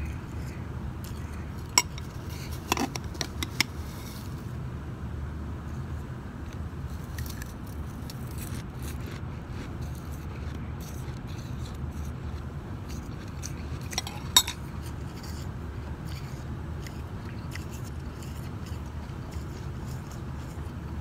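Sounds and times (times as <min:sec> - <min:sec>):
spoon clinking on glass bowl: 0:01.8 - 0:02.1, 0:14.0 - 0:14.6
shaved ice crunching: 0:07.0 - 0:20.7.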